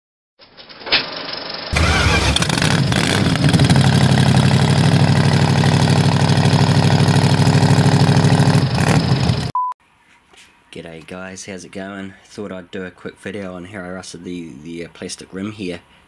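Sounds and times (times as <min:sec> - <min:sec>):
engine idling: 0:01.7 - 0:09.5.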